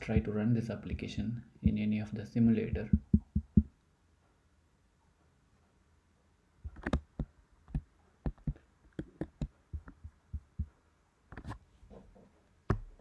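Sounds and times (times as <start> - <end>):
soft clicks and thumps at computer: 2.6 - 3.8, 6.6 - 13.0.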